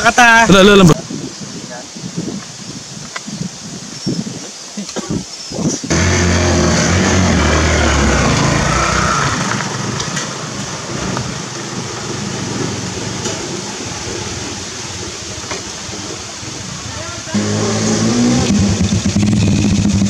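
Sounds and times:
small engine climbing dirt trail: 5.9 - 13.1, 17.3 - 20.0.

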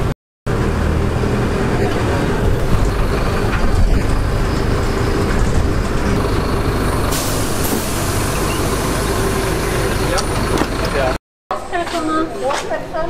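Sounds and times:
bus engine and road rumble: 0.0 - 13.0.

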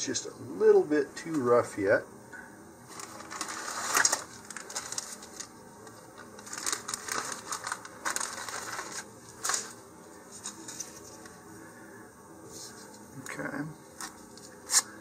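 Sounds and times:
paper rustling: 2.9 - 11.4.

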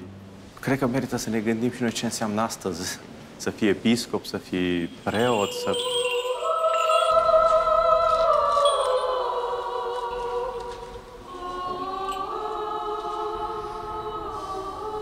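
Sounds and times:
choir singing sustained chords: 5.0 - 15.0.

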